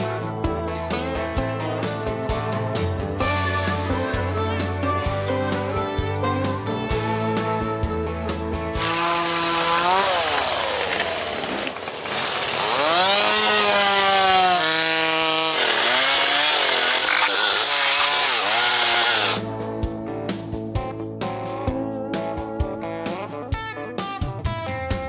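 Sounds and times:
guitar music: 0:00.0 - 0:10.2, 0:18.2 - 0:25.0
chainsaw cutting logs: 0:08.8 - 0:19.4.

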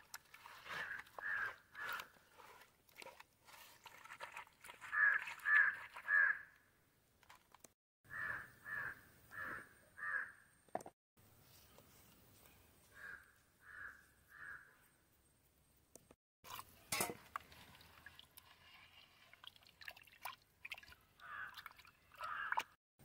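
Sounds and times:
crows cawing: 0:00.7 - 0:02.1, 0:04.9 - 0:06.5, 0:08.1 - 0:10.4, 0:12.9 - 0:14.7, 0:21.2 - 0:21.6, 0:22.2 - 0:22.7.

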